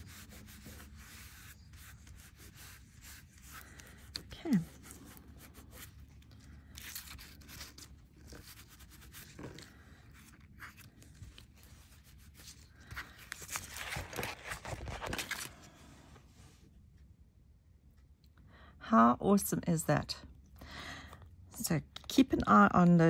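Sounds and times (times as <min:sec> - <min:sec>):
metal tape crinkling and scraping: 0:00.0 - 0:15.6.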